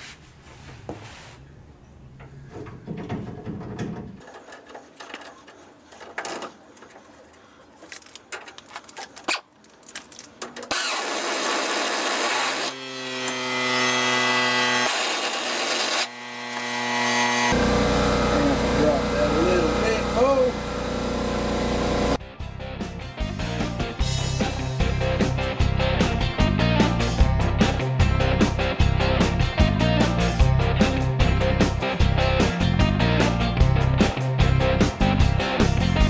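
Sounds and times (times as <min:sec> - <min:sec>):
steady buzz: 0:15.8 - 0:22.2
air compressor rushing: 0:17.5 - 0:22.2.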